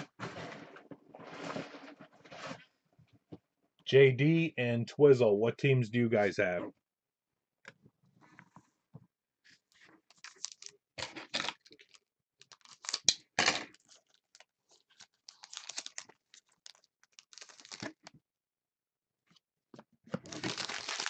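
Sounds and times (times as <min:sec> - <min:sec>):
foil pack crinkling and ripping: 0:10.1 - 0:18.1, 0:20.2 - 0:21.0.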